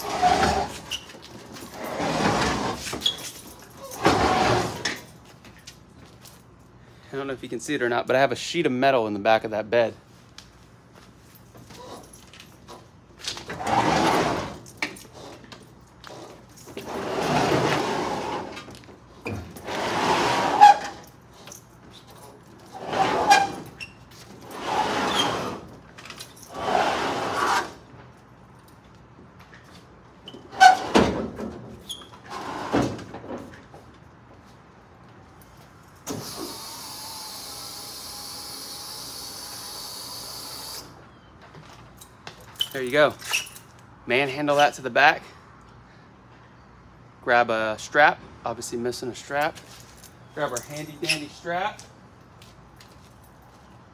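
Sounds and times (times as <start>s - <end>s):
vending machine scraping on sheet metal: 0.0s - 0.9s, 19.6s - 20.9s.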